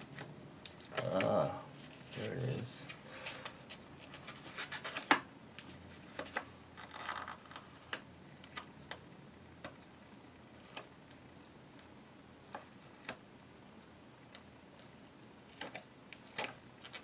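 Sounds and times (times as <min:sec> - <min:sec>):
plastic film peeling crinkling: 0:00.1 - 0:09.0.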